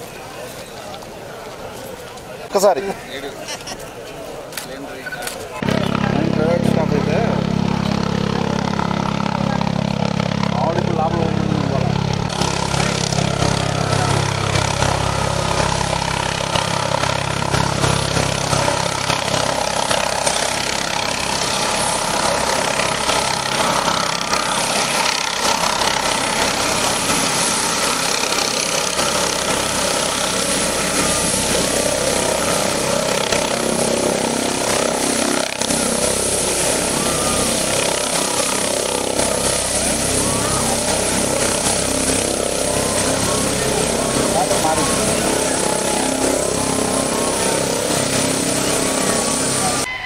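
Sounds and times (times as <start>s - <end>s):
helicopter turbine and rotor noise: 0.0s - 49.9s.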